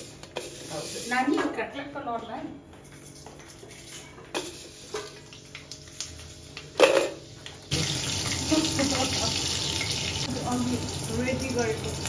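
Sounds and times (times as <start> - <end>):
oil sizzling: 4.4 - 12.0.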